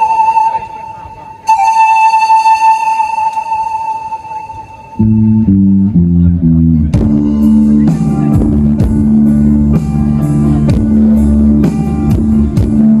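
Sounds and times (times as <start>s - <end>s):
bass guitar: 5.0s - 13.0s.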